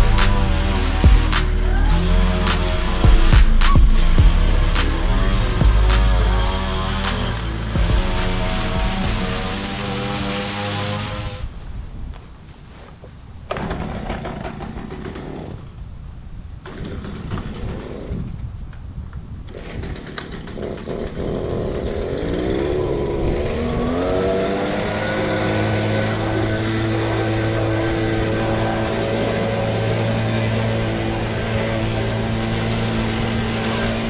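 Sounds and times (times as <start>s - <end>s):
leaf blower engine revving: 0.0s - 11.5s, 20.5s - 34.0s.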